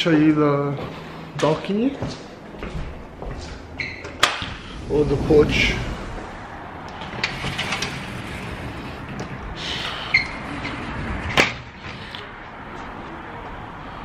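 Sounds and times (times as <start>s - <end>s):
sliding door opening: 3.4s - 13.2s.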